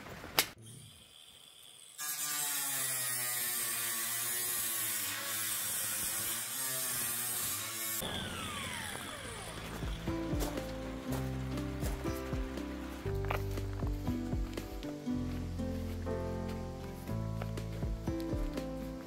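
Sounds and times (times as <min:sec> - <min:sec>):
power tool motor whining: 0:00.6 - 0:10.2.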